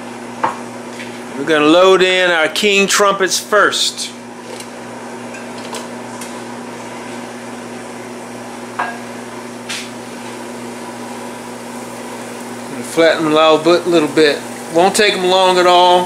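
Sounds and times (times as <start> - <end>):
mushrooms frying in oil: 7.7 - 16.0.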